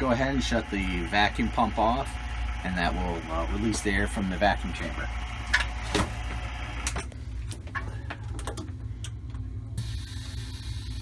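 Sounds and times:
low hum: 0.0 - 11.0
vacuum pump hissing: 9.8 - 11.0.

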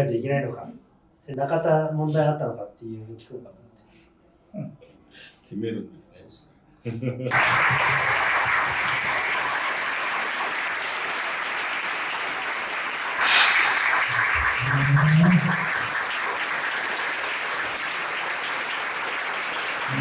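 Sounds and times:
audience applauding: 7.3 - 20.0.

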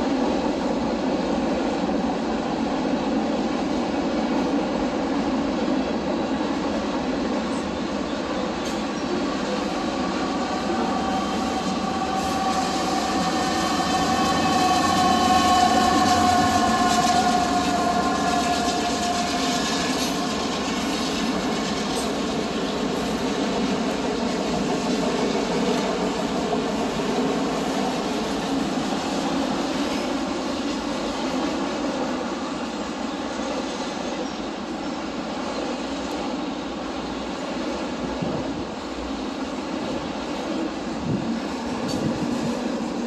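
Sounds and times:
train wheels rumbling on rail: 0.0 - 43.0
high-pitched wheel squeal: 10.0 - 20.5.

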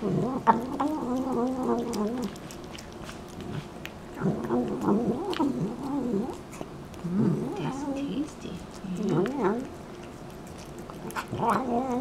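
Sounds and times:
cat murmuring: 0.0 - 12.0
cat chewing clicks: 0.5 - 7.1, 8.6 - 12.0.

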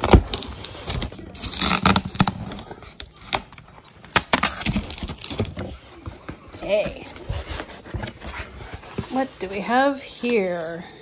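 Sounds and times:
cardboard box tape tearing: 0.0 - 5.9.

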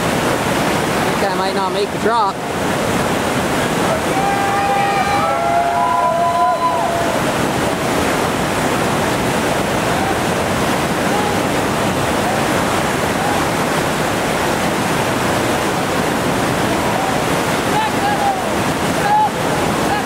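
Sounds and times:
whitewater rapid rushing: 0.0 - 20.0.

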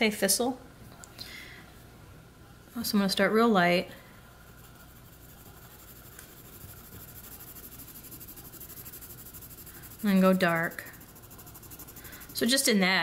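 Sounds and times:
pencil scratching on paper: 4.4 - 12.7.

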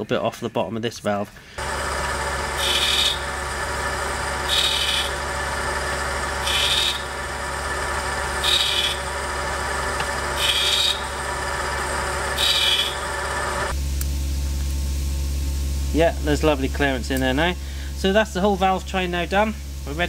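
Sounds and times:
steady motor hum: 1.5 - 20.0
grinding wheel rasping on metal: 1.6 - 13.7.

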